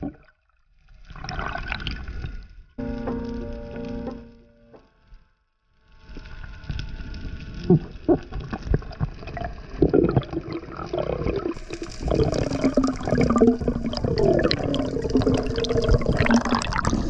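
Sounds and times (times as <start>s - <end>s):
water rushing and bubbling: 7.5s - 17.0s.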